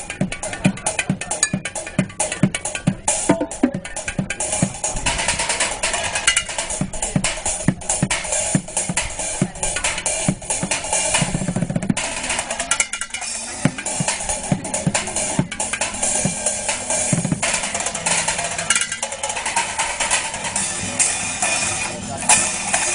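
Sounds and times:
drumming on pots and pans: 0:03.3 - 0:03.9.

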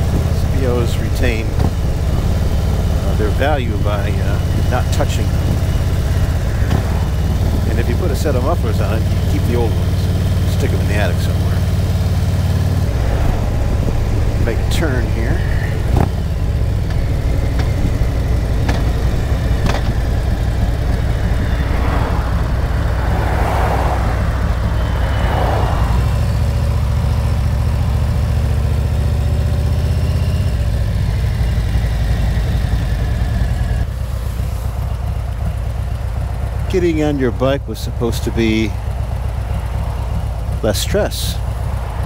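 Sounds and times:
motorcycle engine running: 0:00.0 - 0:42.0
rushing noise: 0:11.5 - 0:28.1, 0:39.0 - 0:42.0.

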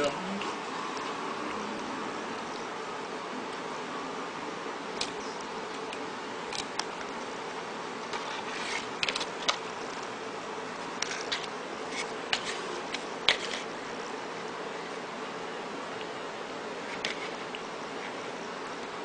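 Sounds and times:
steady hum: 0:00.0 - 0:19.0
plastic spoon scraping plastic tray: 0:11.0 - 0:13.7.

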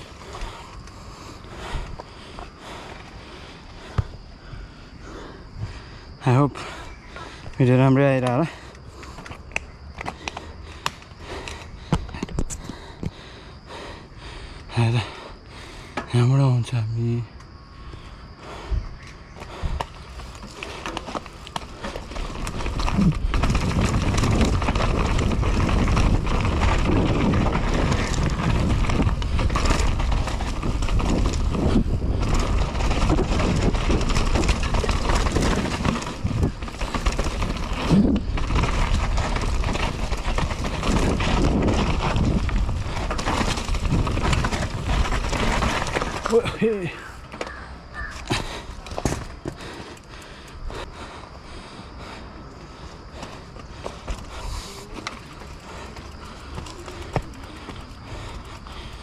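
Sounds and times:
bike rattling over bumps: 0:00.0 - 0:59.0
tyres running over dirt: 0:00.0 - 0:59.0
wind rush on microphone: 0:21.7 - 0:46.4.

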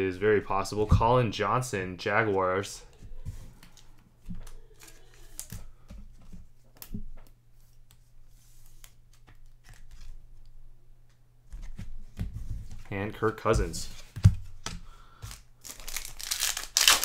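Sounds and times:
cards clicking and rustling: 0:03.6 - 0:05.7, 0:08.7 - 0:10.2, 0:13.9 - 0:17.0.

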